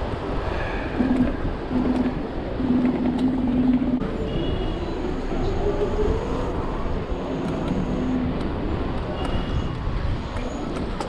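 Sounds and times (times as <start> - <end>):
wind and road noise: 0.0 - 11.0
low hum: 0.9 - 9.0
high double tone: 1.0 - 5.6.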